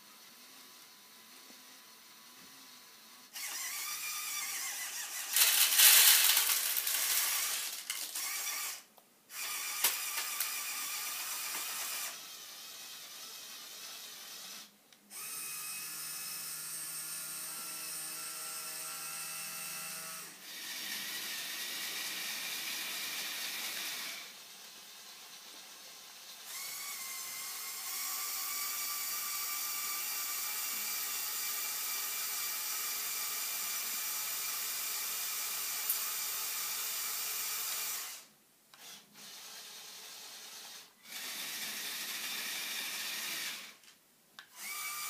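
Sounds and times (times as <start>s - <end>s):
small electric motors whirring: 0.0s - 43.8s, 44.5s - 45.0s
pellets pouring clatter: 5.2s - 8.2s.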